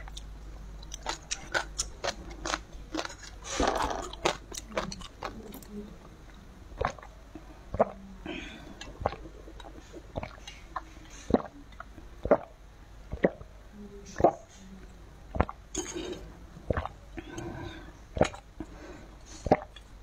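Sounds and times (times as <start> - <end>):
swallowing gulps: 6.8 - 13.5, 15.3 - 15.6, 16.6 - 18.8, 19.4 - 19.8.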